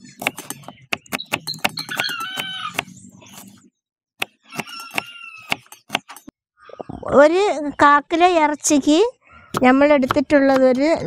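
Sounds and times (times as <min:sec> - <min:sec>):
chickens clucking: 0:01.7 - 0:03.0, 0:04.4 - 0:05.7
knife chopping on wooden board: 0:04.2 - 0:06.2.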